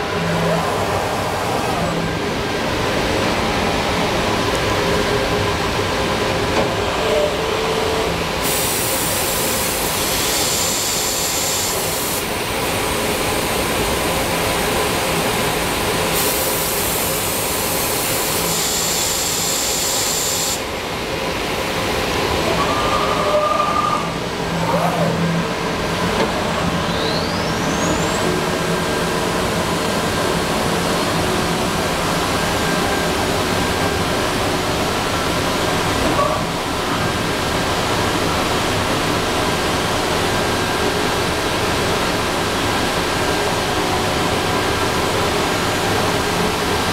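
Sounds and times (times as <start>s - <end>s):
machine running with hiss and hum: 8.2s - 22.0s.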